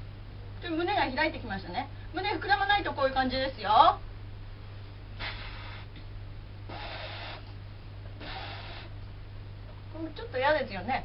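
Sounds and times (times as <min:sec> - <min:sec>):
woman blowing out breath: 0:05.2 - 0:06.0, 0:06.7 - 0:07.5, 0:08.2 - 0:09.0.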